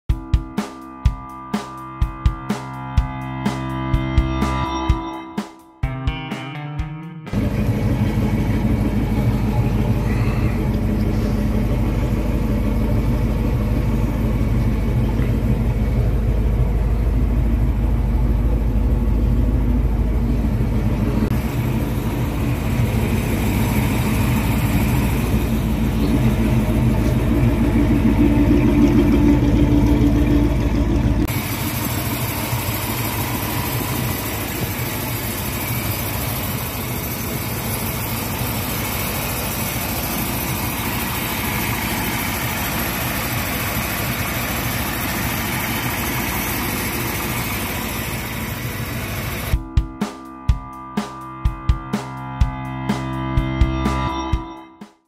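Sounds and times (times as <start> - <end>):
truck engine idling: 7.3 - 49.6.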